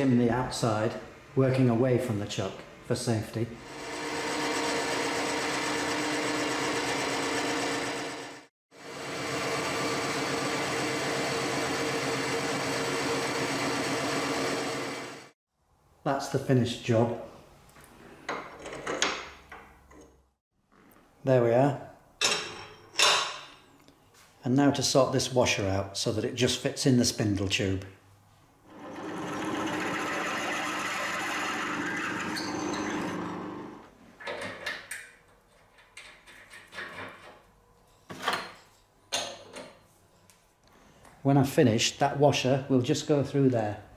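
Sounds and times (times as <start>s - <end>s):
drill press running: 3.7s - 15.3s, 28.7s - 33.9s
metal lathe turning steel: 28.7s - 33.8s.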